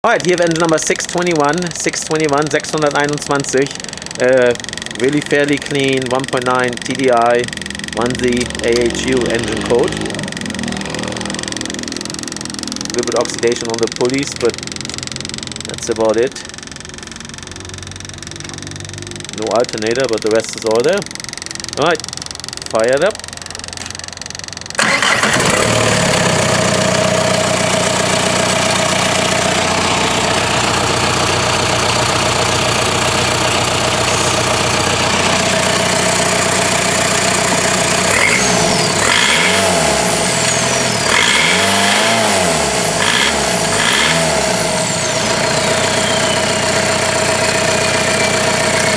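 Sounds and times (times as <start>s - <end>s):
diesel engine idling: 0.0s - 48.9s
turbo whine: 1.2s - 48.9s
engine revving: 2.2s - 16.4s, 24.7s - 48.9s.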